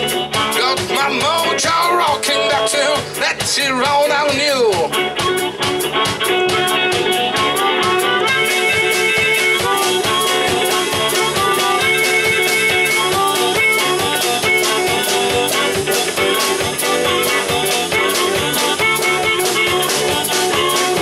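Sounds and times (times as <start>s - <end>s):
blues band playing: 0.0s - 21.0s
drum kit beat: 0.0s - 21.0s
electric guitar: 0.0s - 21.0s.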